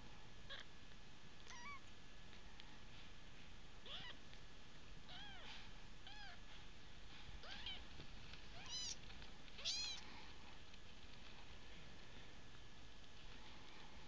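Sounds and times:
kitten mewing: 1.5s - 1.8s, 3.8s - 4.2s, 5.1s - 6.4s, 8.6s - 9.0s, 9.6s - 10.0s.

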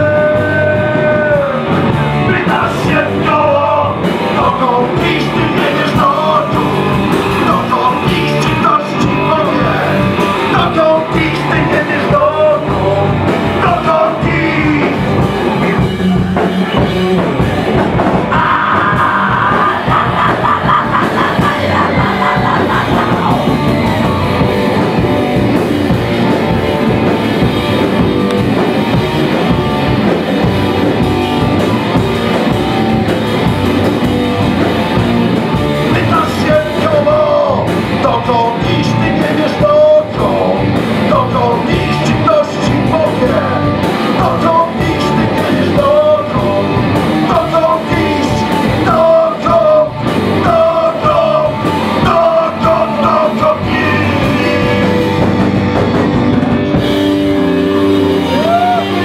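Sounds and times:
man singing: 0.0s - 17.2s, 18.3s - 24.2s, 35.8s - 55.4s
live rock band playing: 0.0s - 59.0s.

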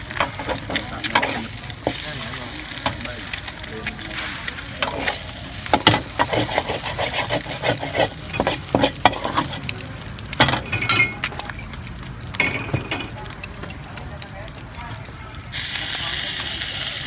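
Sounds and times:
metal spatula scraping on griddle: 0.0s - 9.7s
oil sizzling: 0.0s - 17.0s.

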